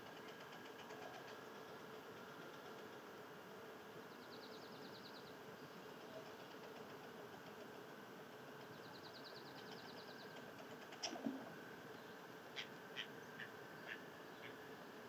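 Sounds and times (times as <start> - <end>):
faint steady hum: 0.0 - 15.0
songbird trilling: 12.0 - 14.7.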